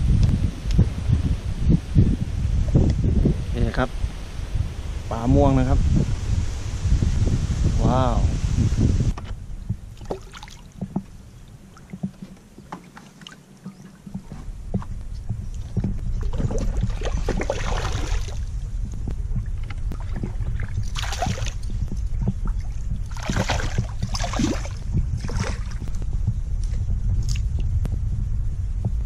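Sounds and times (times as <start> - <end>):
boat engine low rumble: 0.0 - 29.0
water splashing: 9.7 - 26.0.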